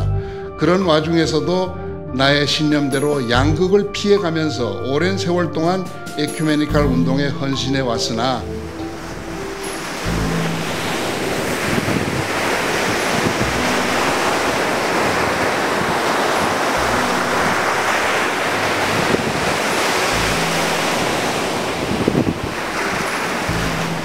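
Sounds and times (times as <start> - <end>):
ocean waves breaking on shore: 5.9 - 24.0.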